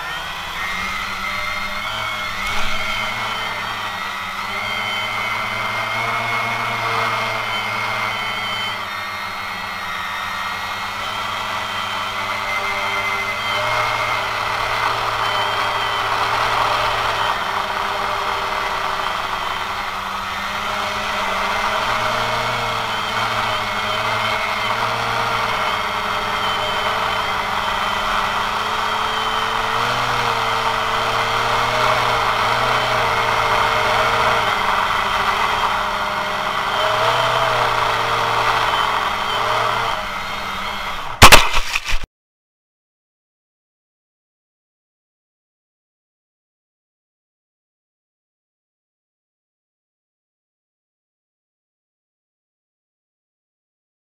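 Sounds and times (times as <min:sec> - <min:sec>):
drone motors humming: 0:00.0 - 0:41.8.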